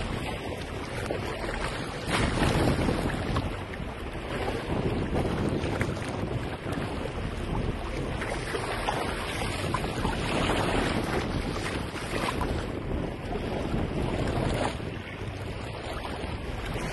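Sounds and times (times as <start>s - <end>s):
water splashing along boat hull: 0.0s - 16.9s
wind buffeting microphone: 0.0s - 16.9s.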